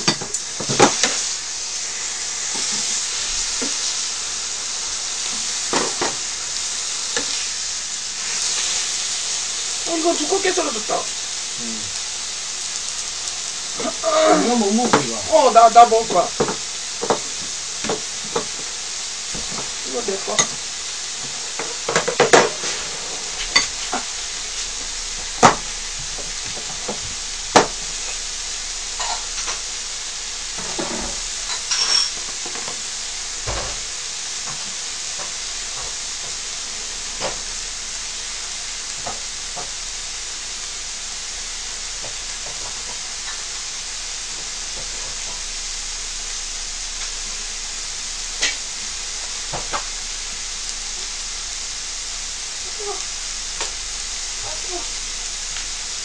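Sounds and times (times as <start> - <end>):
beef sizzling on a griddle: 0.0 - 56.0.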